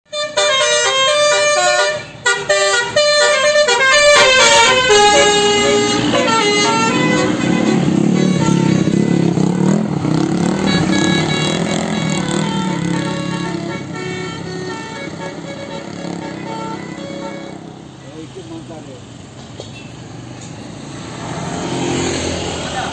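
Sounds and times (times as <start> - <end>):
musical bus horn: 0.1 - 18.2
bus engine running: 0.1 - 22.9.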